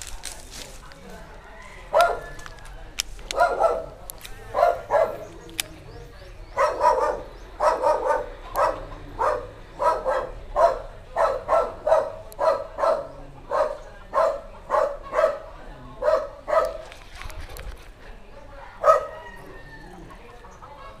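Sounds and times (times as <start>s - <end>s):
dog barking: 1.9s - 2.4s, 3.3s - 5.3s, 6.5s - 16.9s, 18.7s - 19.4s.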